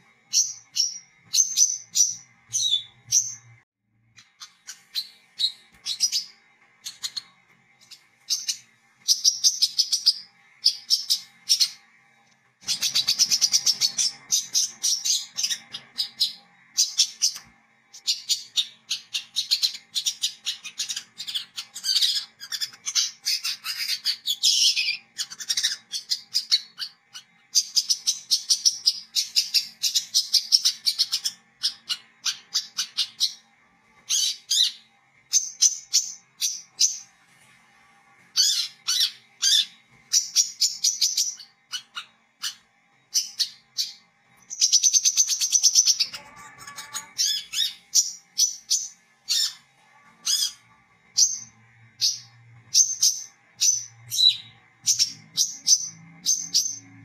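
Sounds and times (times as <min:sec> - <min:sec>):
bird chattering and trilling: 0:00.0 - 0:11.8, 0:12.6 - 0:33.5, 0:38.4 - 0:49.6.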